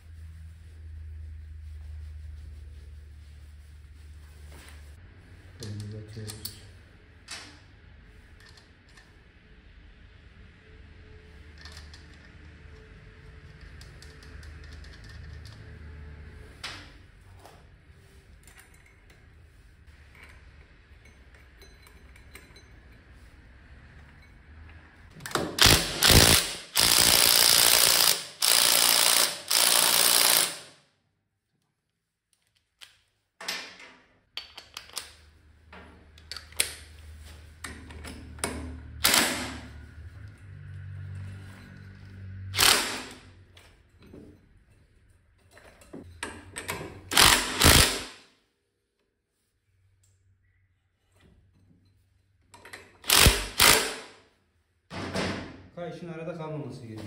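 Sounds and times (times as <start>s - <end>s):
pneumatic air tool bursts: 25.5s - 30.8s, 39.0s - 39.6s, 42.6s - 43.2s, 47.1s - 48.2s, 53.0s - 54.2s.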